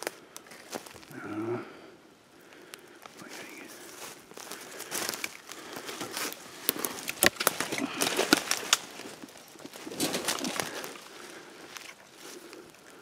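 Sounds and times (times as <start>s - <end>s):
footsteps crunching through dry leaves: 0.0s - 1.2s, 3.0s - 13.0s
twigs snapping: 2.4s - 13.0s
branches brushing past: 3.2s - 12.7s.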